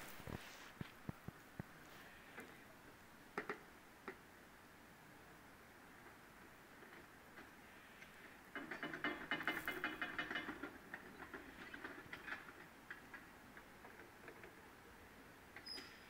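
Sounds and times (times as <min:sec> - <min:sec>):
metallic clicking and rattling: 0:08.5 - 0:14.6.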